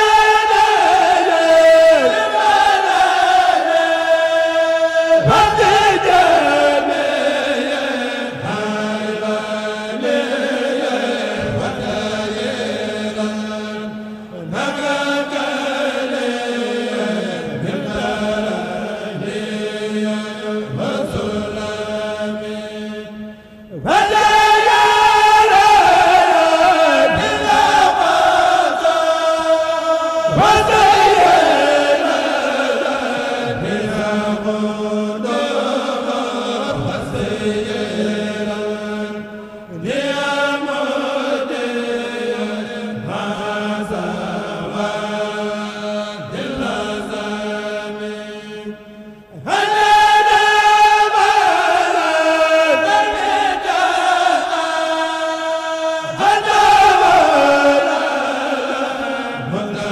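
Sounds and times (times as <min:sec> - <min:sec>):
male choir chanting a cappella: 0:00.0 - 0:59.9.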